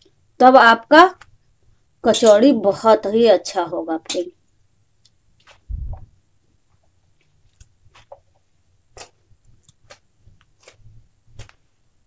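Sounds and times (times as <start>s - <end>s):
hands kneading dough: 5.1s - 12.0s.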